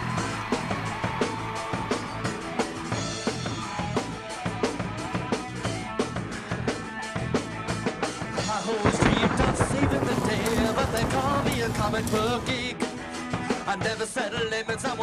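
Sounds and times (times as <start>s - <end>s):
music with drum beat: 0.0s - 15.0s.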